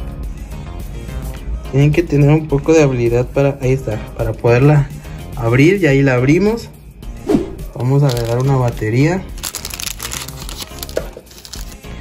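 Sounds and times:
soft background music: 0.0 - 12.0
plastic bag crinkling: 7.7 - 11.8.

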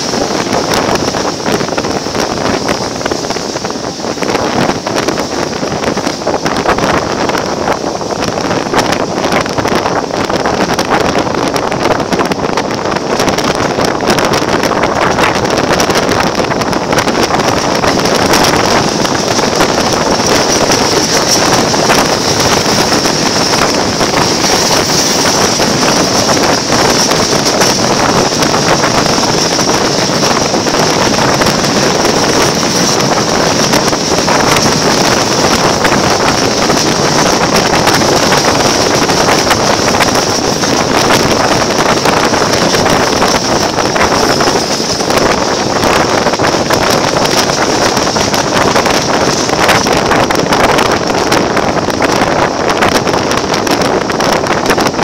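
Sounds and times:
train coaches rolling over rails: 0.0 - 55.0
wind rushing past train window: 0.0 - 55.0.

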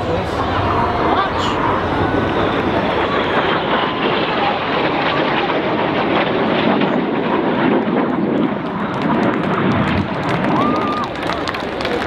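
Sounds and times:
jet engines roaring overhead: 0.0 - 12.0.

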